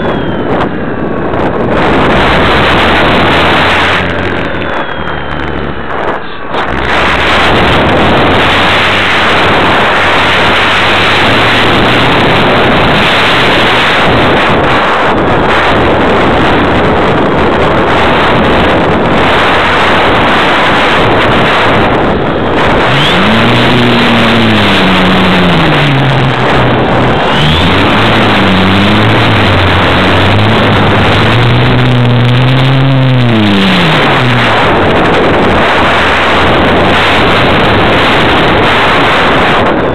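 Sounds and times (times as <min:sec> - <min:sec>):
wind rushing over microphone: 0:00.0 - 0:39.9
model plane motor: 0:18.0 - 0:38.6.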